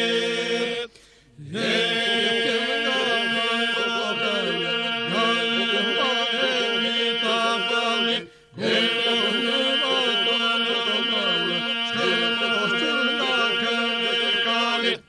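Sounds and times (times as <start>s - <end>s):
group singing a drone: 0.0s - 15.0s
lead voice singing melody: 1.7s - 15.0s.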